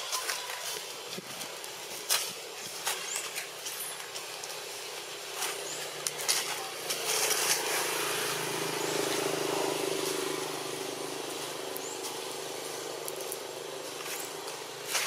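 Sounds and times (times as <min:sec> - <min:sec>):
outdoor background hiss: 0:00.0 - 0:15.0
vehicle engine droning: 0:05.4 - 0:15.0.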